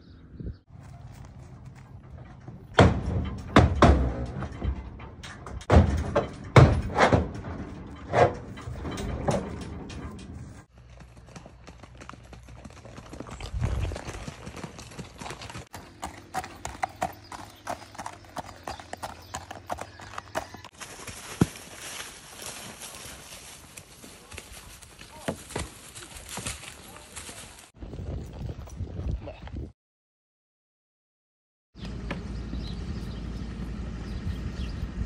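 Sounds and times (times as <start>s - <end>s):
hoofbeats on gravel: 0.7s - 4.6s, 10.4s - 29.7s
hooves thumping in trailer: 0.7s - 28.8s.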